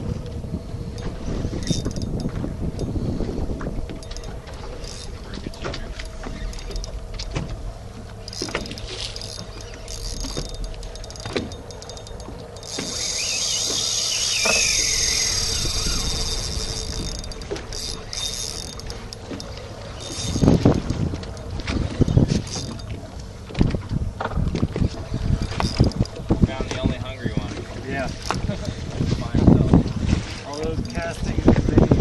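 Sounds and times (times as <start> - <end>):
wind rumble on microphone: 0.0 - 32.0
fishing reel drag buzzing: 0.8 - 23.1, 25.1 - 26.3.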